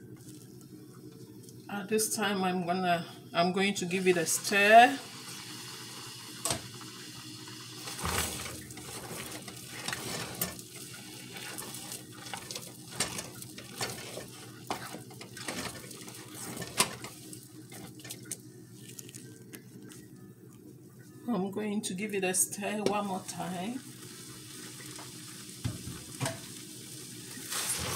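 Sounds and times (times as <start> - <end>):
utensil scraping a metal saucepan: 8.0 - 17.1.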